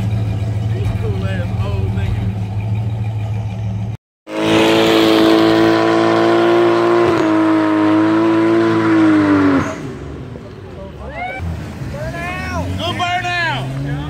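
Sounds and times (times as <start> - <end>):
car engine at high revs: 0.0 - 10.5
car engine running low: 0.0 - 14.0.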